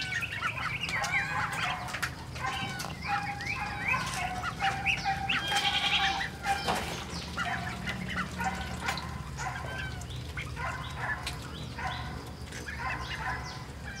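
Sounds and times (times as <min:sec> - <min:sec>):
ducks calling: 0:00.0 - 0:14.0.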